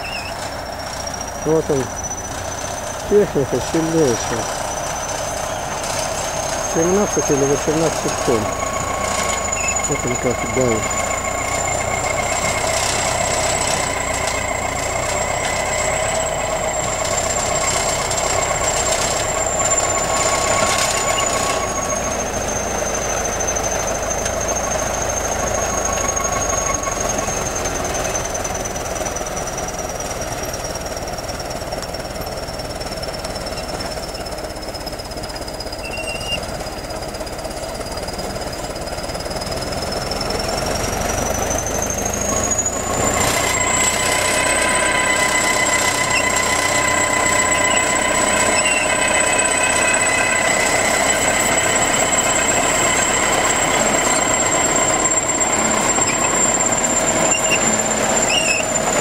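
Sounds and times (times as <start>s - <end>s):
bulldozer engine under load: 0.0s - 59.0s
thin high whine: 6.5s - 28.4s, 40.1s - 59.0s.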